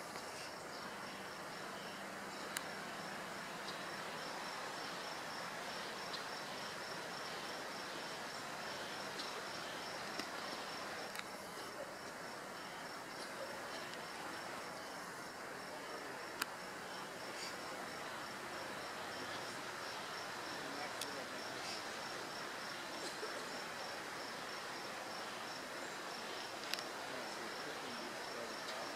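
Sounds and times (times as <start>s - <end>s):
outdoor hiss: 0.0s - 28.9s
insect chirping: 0.1s - 28.9s
faint sharp clicks: 2.5s - 2.7s, 10.0s - 10.4s, 16.3s - 16.6s, 26.6s - 26.9s.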